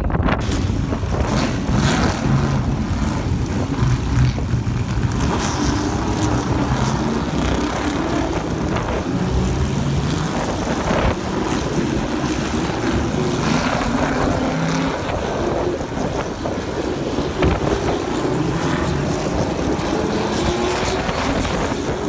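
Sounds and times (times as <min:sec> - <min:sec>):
race car engines at low revs: 0:00.0 - 0:22.0.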